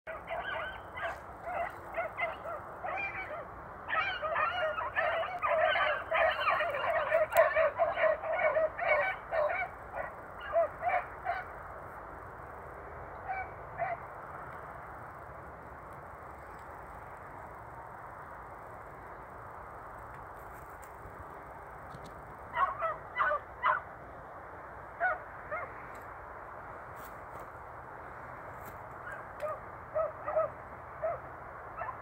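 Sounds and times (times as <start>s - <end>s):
hounds baying: 0.1s - 11.6s, 13.2s - 14.1s, 22.5s - 23.9s, 25.0s - 25.7s, 29.0s - 31.2s, 31.8s - 32.0s.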